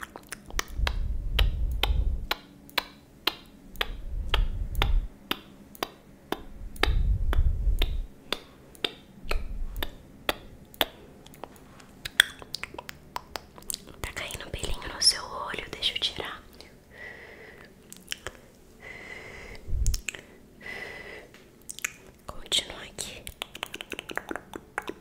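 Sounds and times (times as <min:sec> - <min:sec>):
low rumbling of hands: 0:00.5 - 0:02.4, 0:03.8 - 0:05.2, 0:06.4 - 0:08.2, 0:09.3 - 0:10.6, 0:18.8 - 0:20.1.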